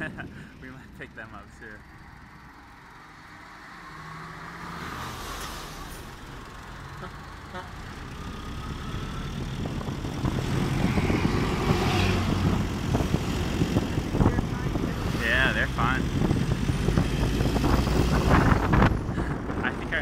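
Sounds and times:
bus passing alongside: 0.0s - 20.0s
engine drone: 0.0s - 20.0s
tyre and traffic noise: 0.0s - 20.0s
wind buffeting microphone: 8.9s - 20.0s.

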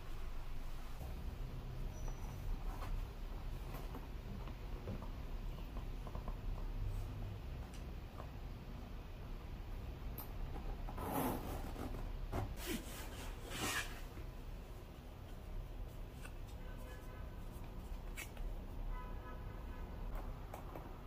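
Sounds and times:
zipper pulled open: 10.9s - 12.0s.

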